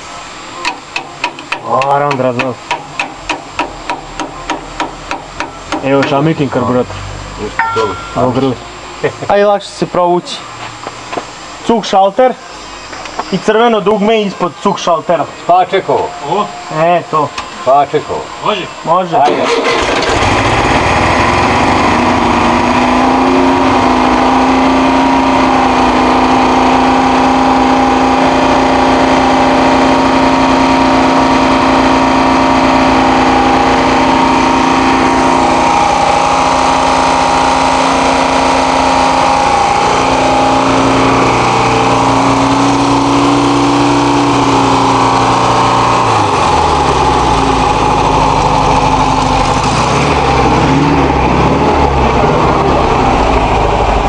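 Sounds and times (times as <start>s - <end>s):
air-cooled engine running: 15.9s - 54.0s.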